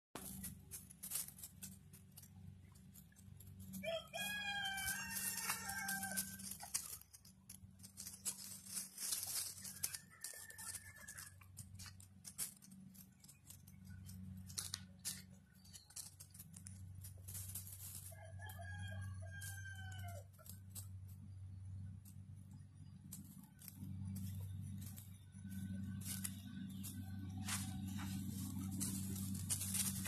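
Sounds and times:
leaves crackling under paws: 0.2 - 20.8, 23.6 - 30.0
rooster crowing: 3.8 - 7.0, 9.5 - 11.6, 18.1 - 20.3
steady low hum: 20.2 - 30.0.

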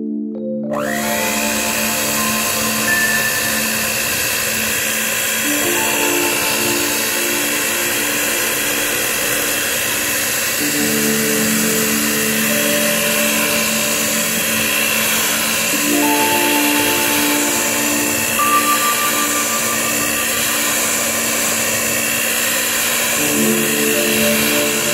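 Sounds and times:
soft background music: 0.0 - 24.9
electric hand mixer whipping: 0.8 - 24.9.

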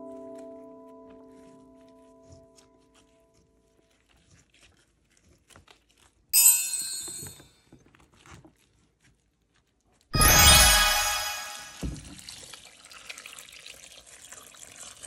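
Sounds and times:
wet cabbage leaves rustling and crunching: 2.5 - 6.3.

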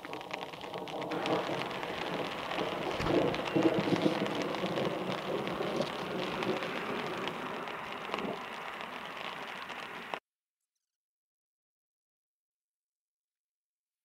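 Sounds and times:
rain pattering: 0.0 - 10.2.

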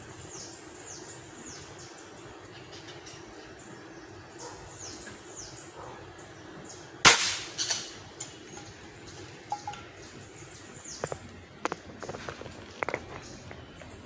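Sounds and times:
birds chirping: 0.0 - 14.0
air rifle shot: 7.0 - 7.7.

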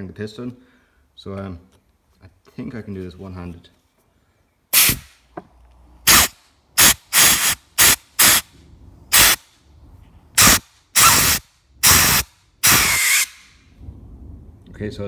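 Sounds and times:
air blow gun hissing blasts: 4.7 - 5.3, 6.0 - 8.5, 9.1 - 9.5, 10.4 - 13.6.

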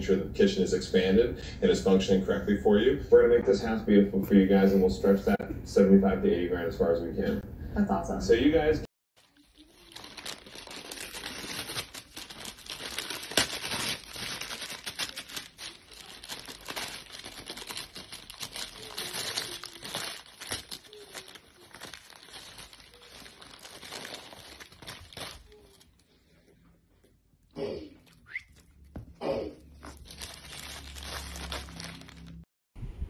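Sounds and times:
dog chewing crinkly wrapper: 9.2 - 25.9, 29.8 - 32.5.

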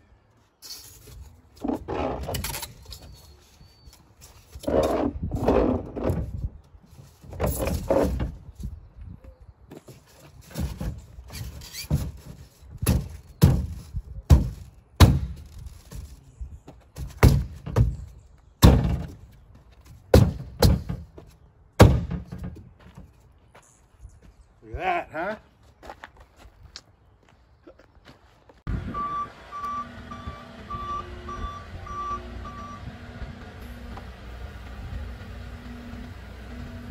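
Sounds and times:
foam panels scraping: 9.8 - 16.3.

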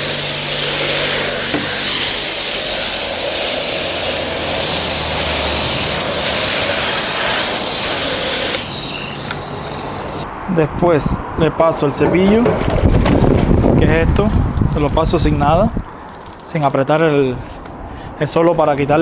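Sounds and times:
foam lance spray hissing: 0.0 - 10.2.

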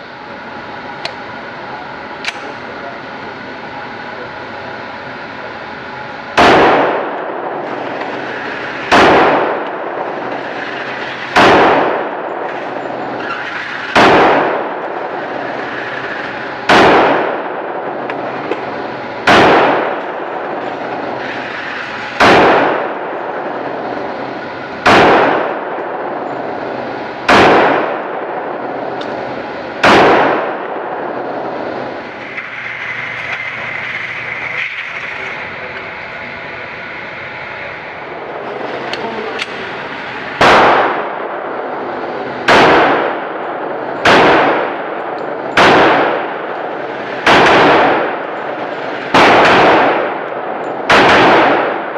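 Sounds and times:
target carrier motor whine: 0.0 - 50.9
pistol shots echoing indoors: 6.4 - 12.9, 13.5 - 15.9, 16.6 - 18.2, 19.2 - 20.6, 22.2 - 23.2, 24.8 - 26.2, 27.2 - 29.2, 29.8 - 31.6, 40.3 - 41.6, 42.4 - 51.9.

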